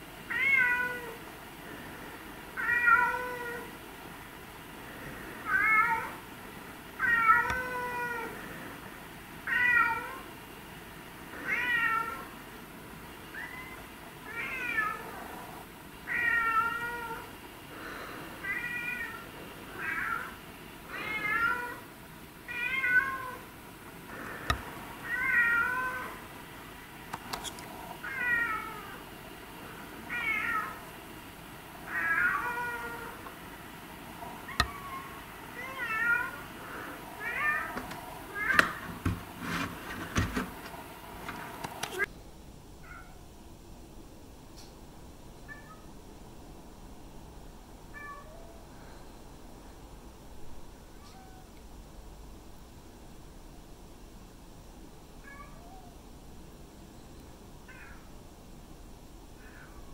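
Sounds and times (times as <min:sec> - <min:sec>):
cat meowing: 0:00.3 - 0:01.2, 0:02.6 - 0:03.7, 0:05.5 - 0:06.2, 0:07.0 - 0:08.3, 0:09.5 - 0:10.2, 0:11.4 - 0:12.3, 0:13.3 - 0:15.1, 0:16.1 - 0:17.3, 0:18.4 - 0:20.3, 0:20.9 - 0:21.8, 0:22.5 - 0:23.4, 0:25.0 - 0:26.2, 0:28.0 - 0:29.0, 0:30.1 - 0:30.8, 0:31.9 - 0:33.2, 0:34.5 - 0:36.4, 0:45.5 - 0:45.9, 0:47.9 - 0:48.6, 0:50.9 - 0:51.5, 0:55.2 - 0:56.0, 0:57.7 - 0:58.1.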